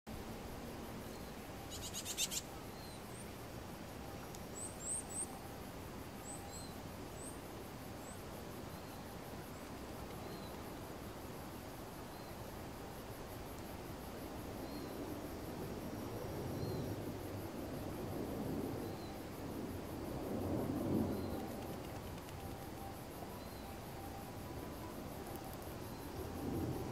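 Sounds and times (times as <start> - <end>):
insects trilling: 0.1 - 26.9
birds chirping: 1.1 - 3.2.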